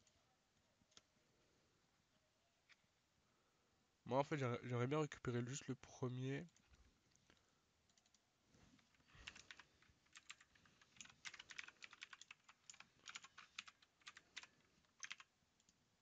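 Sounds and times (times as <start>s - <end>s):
faint keyboard typing: 6.4s - 15.9s.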